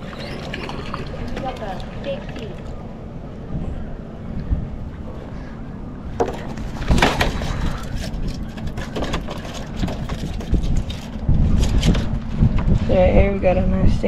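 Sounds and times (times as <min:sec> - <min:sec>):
wind rumble on microphone: 0:00.0 - 0:14.0
stingray slapping on plastic decking: 0:06.2 - 0:12.1.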